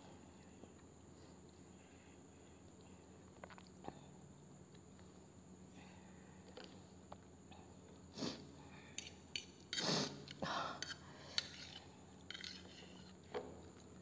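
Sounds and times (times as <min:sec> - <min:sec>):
person sniffing hard: 0:08.2 - 0:08.5, 0:09.8 - 0:10.2
metal fork scraping in bowl: 0:10.8 - 0:13.1.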